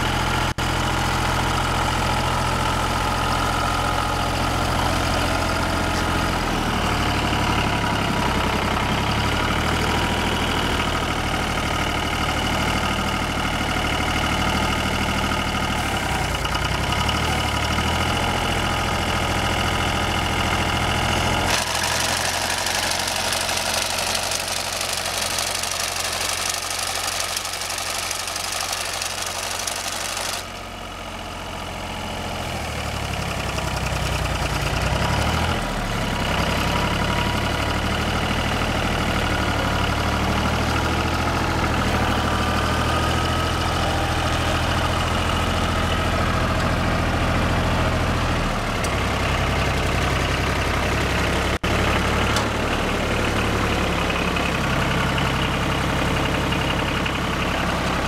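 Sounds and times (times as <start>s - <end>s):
tractor diesel engine running: 0.0s - 58.0s
loud noisy clatter: 21.4s - 30.6s.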